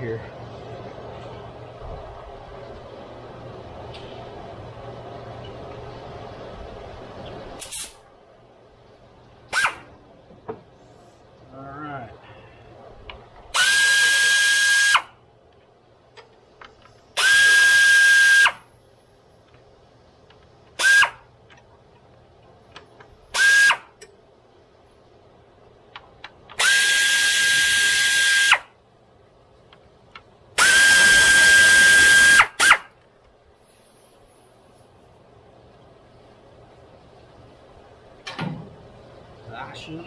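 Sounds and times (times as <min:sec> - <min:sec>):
air ratchet hissing and whining: 0:07.6 - 0:08.0, 0:13.5 - 0:15.1, 0:17.2 - 0:18.7, 0:20.8 - 0:21.3, 0:23.3 - 0:24.0, 0:26.6 - 0:28.6, 0:30.6 - 0:32.9.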